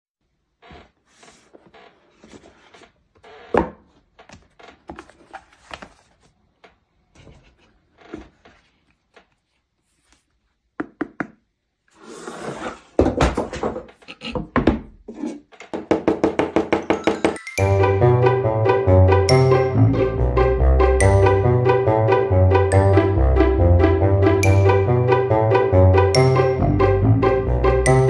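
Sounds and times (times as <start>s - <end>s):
cardboard box lid sliding: 12.0s - 13.0s
tablet knocking on wooden table: 15.7s - 17.4s.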